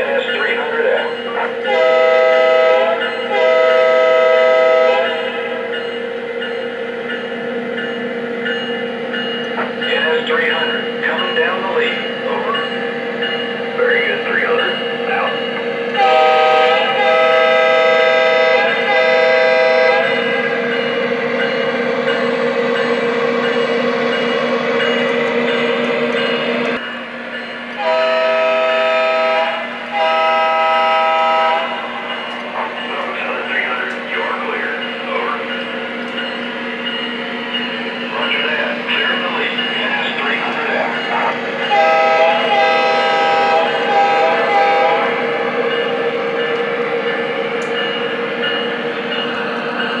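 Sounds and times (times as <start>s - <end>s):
model locomotive engine sound: 0.0s - 50.0s
model train rumbling on track: 0.0s - 50.0s
air horn blasts: 1.7s - 5.2s, 16.0s - 20.1s, 27.8s - 31.8s, 41.7s - 45.2s.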